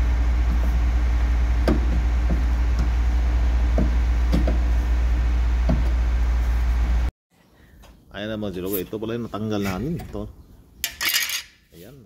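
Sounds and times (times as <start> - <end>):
steady low hum: 0.0 - 7.7.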